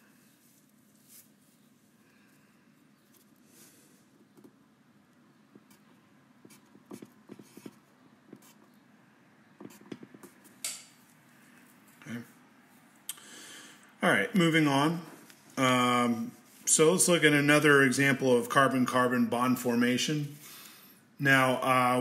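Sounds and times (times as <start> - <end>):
pen scratching while writing: 6.4 - 8.6.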